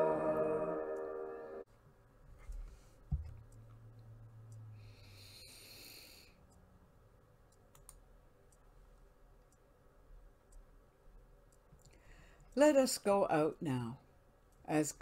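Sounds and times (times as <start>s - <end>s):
faint clicks: 7.5s - 8.7s.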